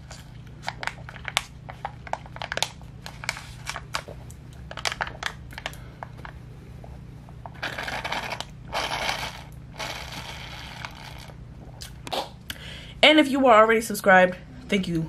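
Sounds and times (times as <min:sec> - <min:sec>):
foil pouch crinkling: 0:00.0 - 0:06.4.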